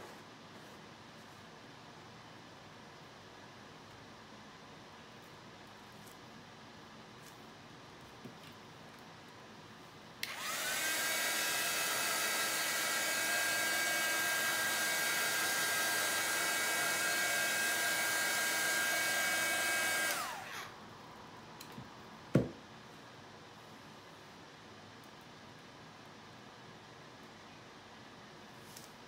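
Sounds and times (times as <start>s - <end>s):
heat gun fan whine: 10.2s - 21.0s.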